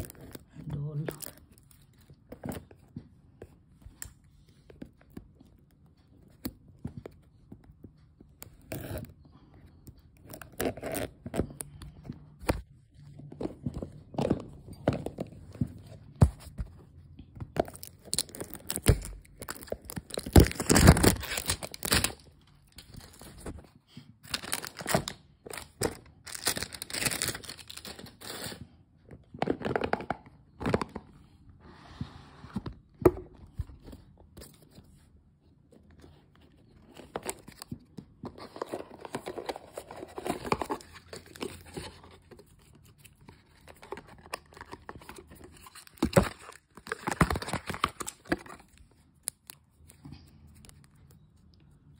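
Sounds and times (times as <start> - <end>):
packaging ripping and rustling: 17.6 - 23.6, 24.2 - 28.6, 42.9 - 49.6.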